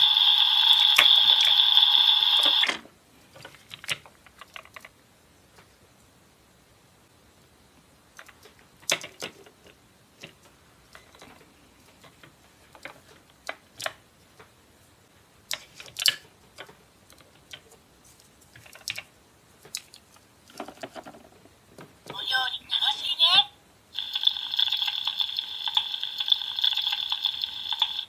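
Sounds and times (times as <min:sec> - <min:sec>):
plastic toys clicking and knocking: 0:03.4 - 0:05.0, 0:08.2 - 0:14.5, 0:15.5 - 0:17.8, 0:18.5 - 0:22.0, 0:24.1 - 0:28.0.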